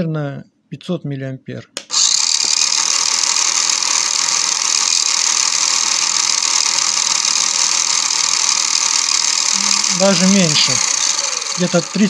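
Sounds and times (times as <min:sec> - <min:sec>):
toy motor whirring: 0:01.9 - 0:12.0.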